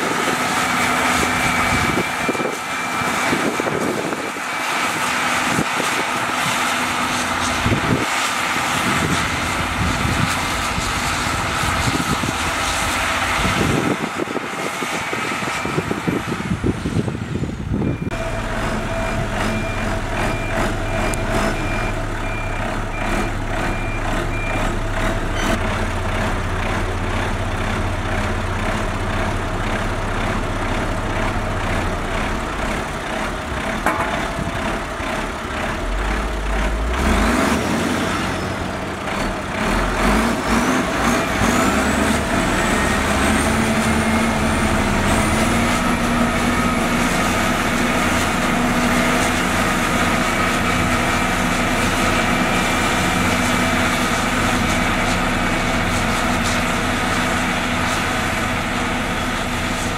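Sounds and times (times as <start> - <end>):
diesel engines running: 0.0 - 59.9
reversing alarm beeping: 0.6 - 6.1, 14.0 - 16.2, 17.7 - 25.6
engine revving up: 35.6 - 38.5, 39.1 - 46.7.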